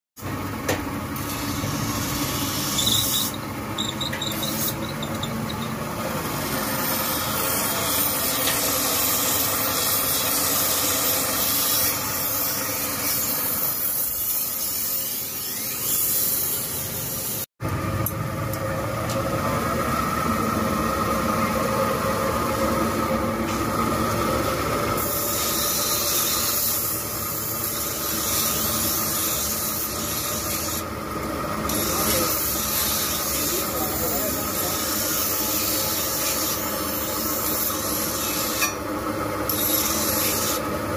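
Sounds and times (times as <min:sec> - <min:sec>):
motor hum: 0:00.2 - 0:14.1
metal grinding rasp: 0:01.2 - 0:17.4, 0:25.0 - 0:30.8, 0:31.7 - 0:38.8, 0:39.5 - 0:40.6.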